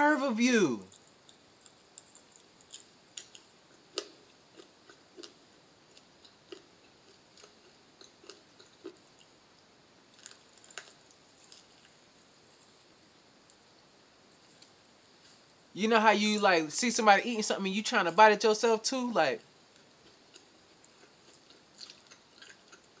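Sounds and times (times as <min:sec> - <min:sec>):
person chewing with crunches: 0:00.9 - 0:09.4, 0:10.1 - 0:13.8, 0:19.4 - 0:23.0.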